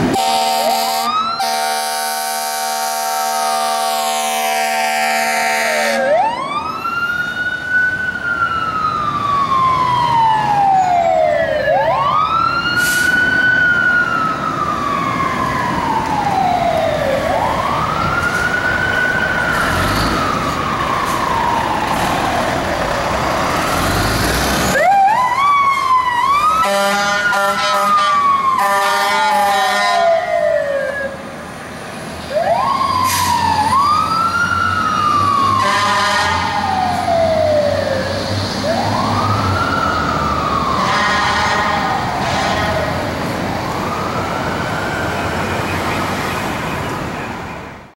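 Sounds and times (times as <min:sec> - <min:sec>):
horn blasts: 0:00.1 - 0:06.1, 0:26.6 - 0:30.1, 0:35.6 - 0:36.5, 0:40.8 - 0:42.9
siren wailing: 0:00.1 - 0:31.4, 0:32.3 - 0:47.6.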